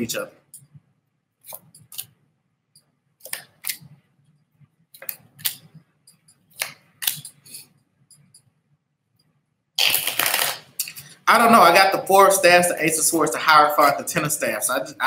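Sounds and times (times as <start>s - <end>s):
cards shuffled and snapped: 9.8s - 10.7s.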